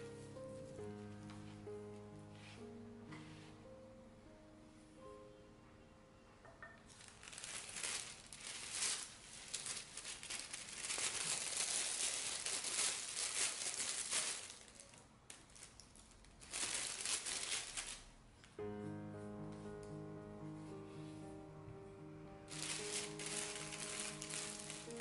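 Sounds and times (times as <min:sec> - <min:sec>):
plastic bag crinkling: 0:06.9 - 0:18.2, 0:22.5 - 0:25.0.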